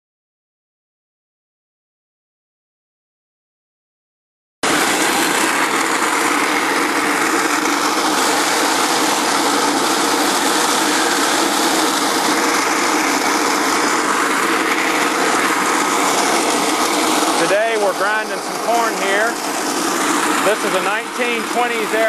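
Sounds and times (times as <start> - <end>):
burr mill grinding corn: 4.6 - 22.0.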